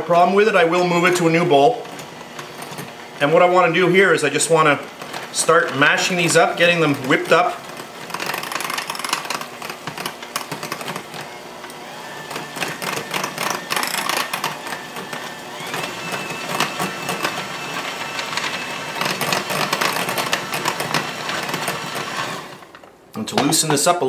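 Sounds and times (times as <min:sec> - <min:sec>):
mixer motor whine: 0:00.0 - 0:22.9
beaters clattering against glass bowl: 0:12.6 - 0:14.6.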